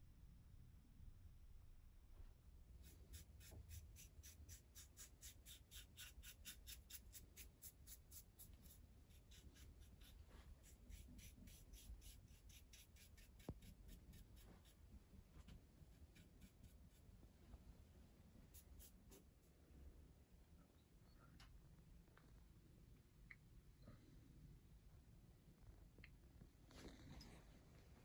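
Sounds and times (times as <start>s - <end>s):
small brush strokes on wood: 2.8s - 14.8s.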